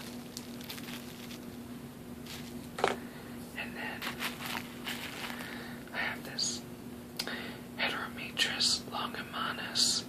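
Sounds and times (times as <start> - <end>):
bubble wrap crinkling: 0.0 - 2.9, 4.0 - 5.9
steady low hum: 0.0 - 10.0.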